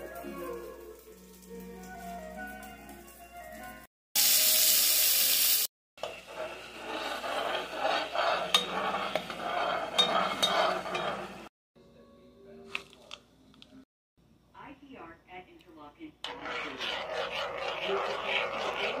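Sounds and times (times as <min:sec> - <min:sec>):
onion sizzling in a pot: 0:00.0 - 0:03.6, 0:04.2 - 0:07.4
metal spatula scraping and stirring: 0:06.0 - 0:11.5, 0:16.2 - 0:19.0.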